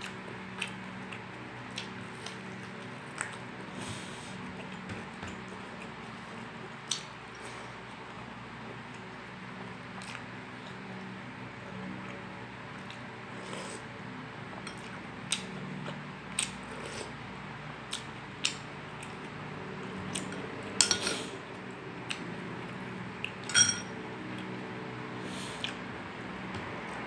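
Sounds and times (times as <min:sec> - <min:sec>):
quiet chewing: 0:00.0 - 0:08.2, 0:11.9 - 0:13.9
spoon clinking on glass bowl: 0:23.5 - 0:23.9.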